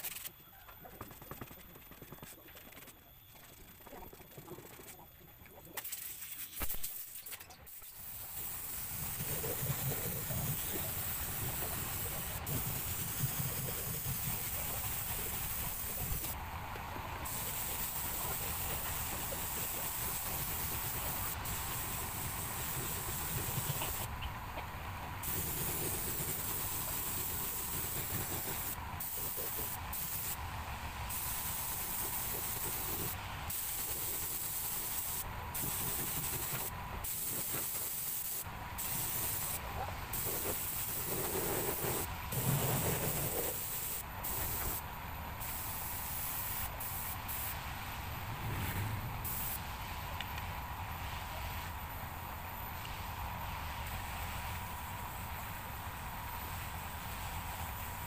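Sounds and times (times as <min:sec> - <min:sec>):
spray gun hissing: 0:06.6 - 0:16.4, 0:17.2 - 0:24.1, 0:25.2 - 0:30.4, 0:31.1 - 0:44.8, 0:45.4 - 0:48.6, 0:49.2 - 0:50.0.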